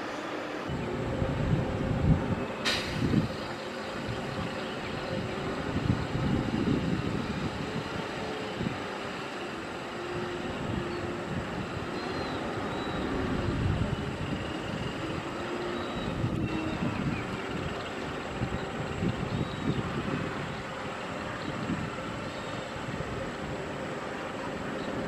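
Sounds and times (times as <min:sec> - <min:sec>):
diesel truck engine rumbling: 0:00.0 - 0:25.0.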